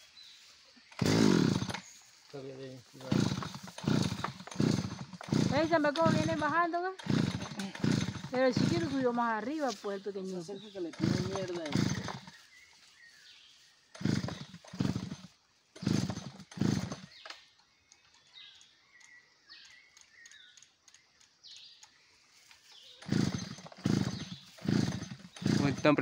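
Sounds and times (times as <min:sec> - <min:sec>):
small birds chirping: 0:00.0 - 0:26.0
howler monkeys roaring: 0:23.0 - 0:26.0.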